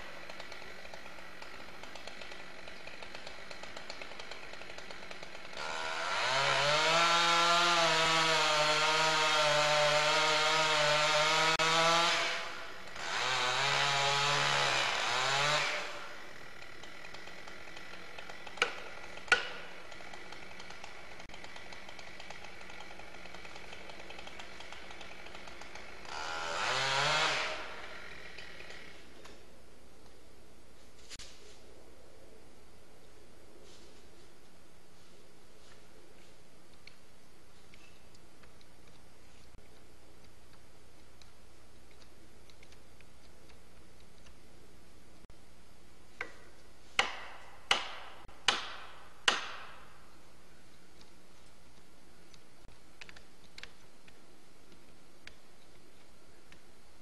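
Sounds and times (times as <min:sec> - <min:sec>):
chainsaw revving: 0:00.0 - 0:29.1
hand tool striking a tree: 0:00.0 - 0:29.4, 0:46.2 - 0:50.0.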